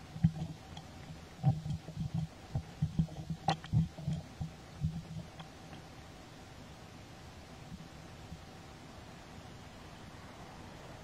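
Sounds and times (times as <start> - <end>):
soft low thumps: 0.0 - 5.9.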